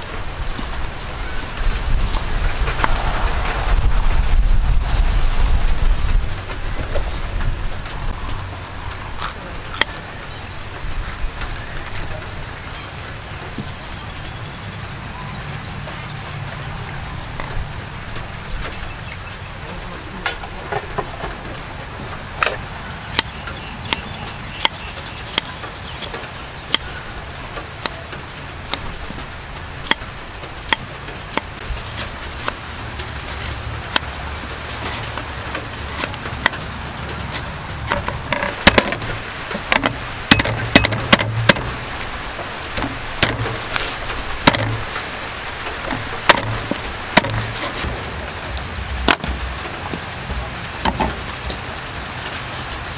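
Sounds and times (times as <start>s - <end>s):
knife chopping on wooden board: 22.4s - 26.9s, 42.8s - 45.0s, 45.8s - 48.0s.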